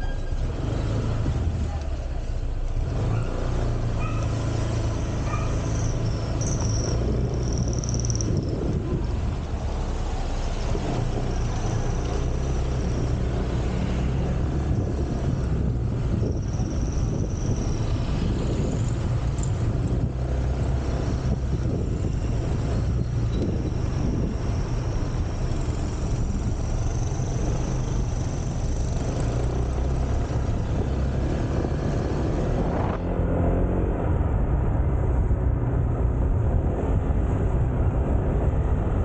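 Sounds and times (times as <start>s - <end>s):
road and wind noise: 0.0s - 39.0s.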